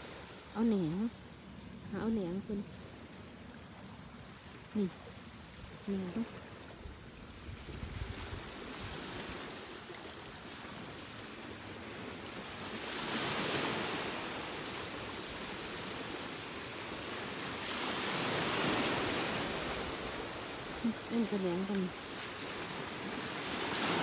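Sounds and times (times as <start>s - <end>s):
surf washing onto pebbles: 7.8s - 21.1s, 21.9s - 24.0s.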